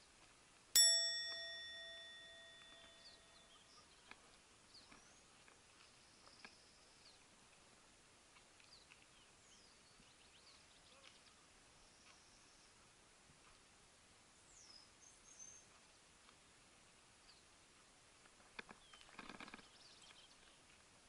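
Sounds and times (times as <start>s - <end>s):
bell ringing: 0.8s - 3.5s
faint birds chirping: 1.3s - 13.0s, 18.6s - 20.8s.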